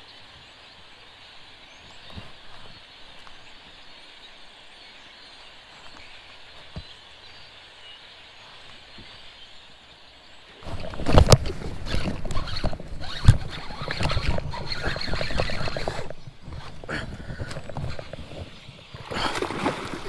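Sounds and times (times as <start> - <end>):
faint outdoor hiss: 0.0 - 20.0
fishing rod and reel handling: 10.6 - 18.6.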